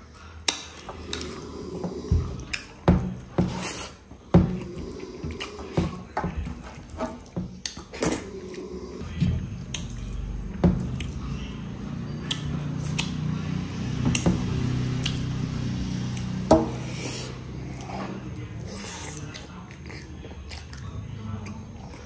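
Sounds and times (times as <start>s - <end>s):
chewing: 0.0s - 22.0s.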